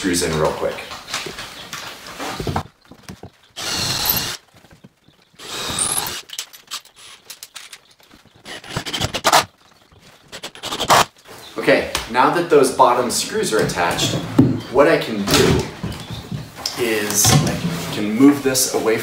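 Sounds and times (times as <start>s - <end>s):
cordless drill running: 3.6s - 4.4s, 5.4s - 6.3s.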